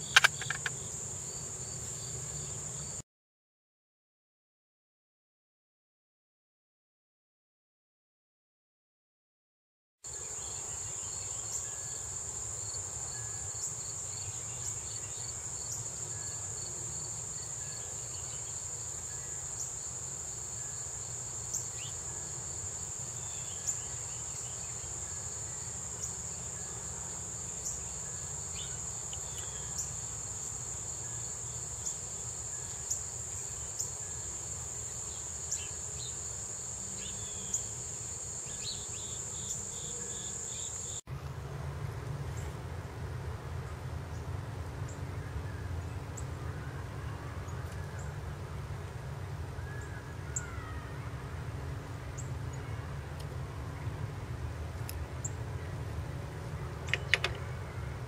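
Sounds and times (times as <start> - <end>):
insects trilling: 0.0 - 3.0, 10.1 - 41.0.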